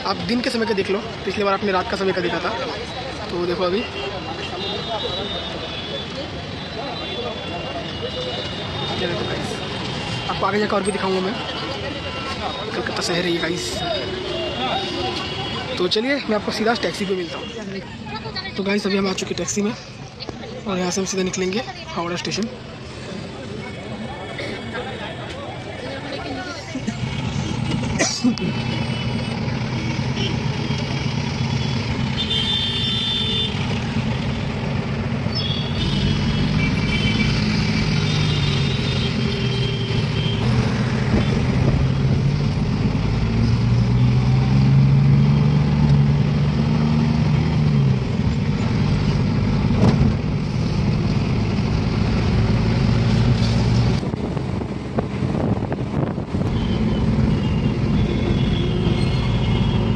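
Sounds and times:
vehicle horns tooting: 0:03.7 - 0:12.8, 0:13.4 - 0:15.9, 0:31.6 - 0:33.8, 0:35.3 - 0:41.5, 0:56.5 - 0:59.9.

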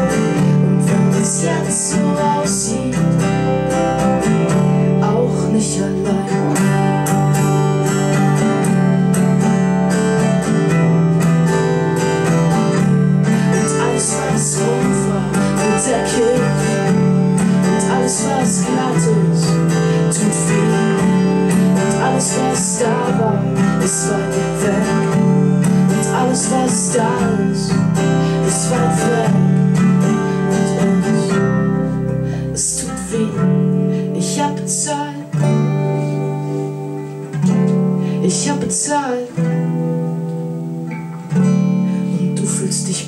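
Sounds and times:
acoustic guitars strumming: 0:00.0 - 0:43.0
electric guitar: 0:00.0 - 0:43.0.

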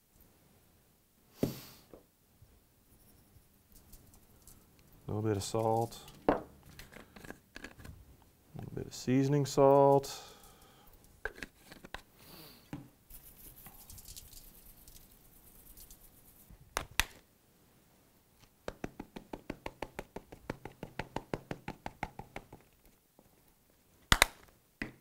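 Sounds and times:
seasoning shaker rattling: 0:02.9 - 0:06.2, 0:13.1 - 0:16.6.

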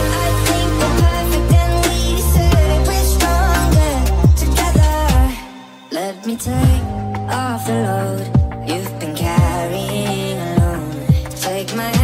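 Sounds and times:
low bass: 0:00.0 - 0:05.4, 0:06.4 - 0:11.4
sped-up electronic pop music: 0:00.0 - 0:12.0
deep beat: 0:01.0 - 0:05.3, 0:06.5 - 0:12.0
held synth notes: 0:06.4 - 0:10.8.

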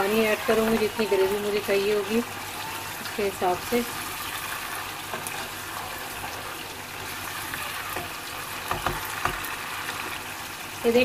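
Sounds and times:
curry sizzling in a frying pan: 0:00.0 - 0:11.0
spatula knocking against pan: 0:07.9 - 0:09.5.

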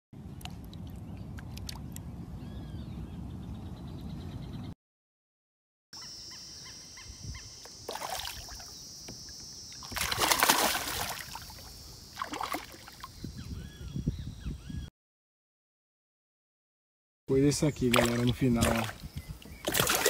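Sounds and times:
fish splashing at water surface: 0:07.9 - 0:08.7, 0:09.8 - 0:13.1, 0:17.9 - 0:19.0, 0:19.6 - 0:20.0.

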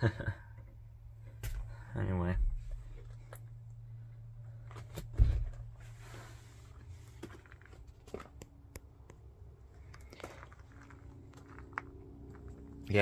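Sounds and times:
heavy low thump: 0:01.4 - 0:03.0, 0:05.0 - 0:05.8.

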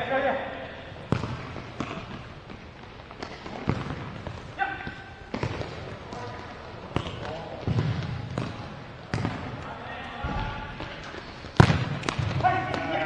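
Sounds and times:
ball kicked and bouncing: 0:01.1 - 0:09.6, 0:11.6 - 0:12.9.

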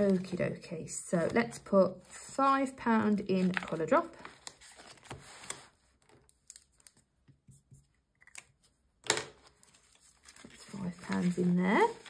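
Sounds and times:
banknote rustling into plastic pocket: 0:02.9 - 0:08.7, 0:09.3 - 0:12.0.

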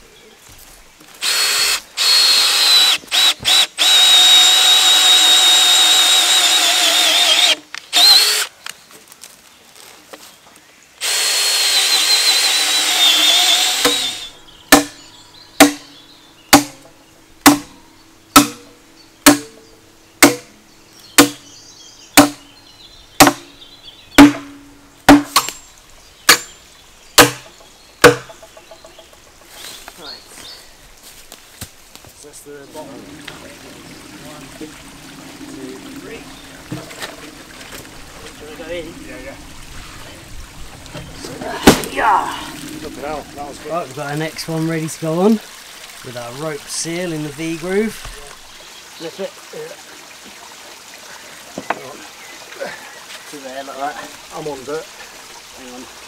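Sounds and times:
cordless drill boring through timber: 0:01.2 - 0:08.5, 0:11.0 - 0:14.3
hammer striking steel rod: 0:14.7 - 0:15.0, 0:15.6 - 0:15.9, 0:16.5 - 0:16.8, 0:17.4 - 0:19.6, 0:20.2 - 0:20.5, 0:21.2 - 0:21.4, 0:22.2 - 0:22.4, 0:23.2 - 0:23.5, 0:24.2 - 0:25.6, 0:26.3 - 0:26.5, 0:27.2 - 0:28.4.

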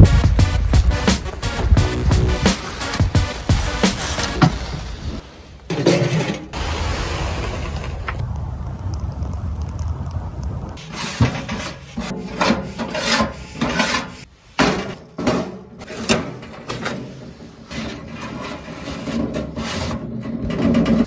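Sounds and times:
tool scraping ash on steel: 0:02.4 - 0:06.6, 0:10.8 - 0:21.0.

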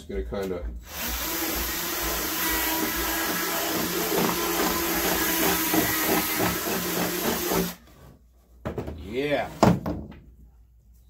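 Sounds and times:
cordless drill cutting plastic: 0:00.9 - 0:07.8.

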